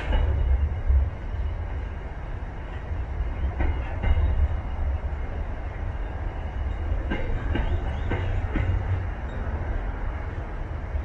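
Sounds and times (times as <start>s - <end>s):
wheels clacking over rail joints: 0.0s - 1.1s, 2.6s - 10.6s
freight train rumbling past: 0.0s - 11.0s.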